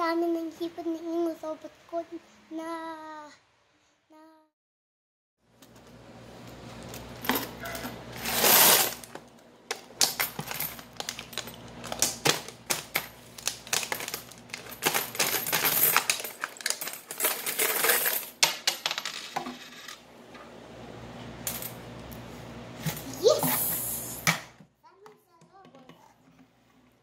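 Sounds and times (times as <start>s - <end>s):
coins clinking and rattling: 6.8s - 9.1s, 9.7s - 20.0s.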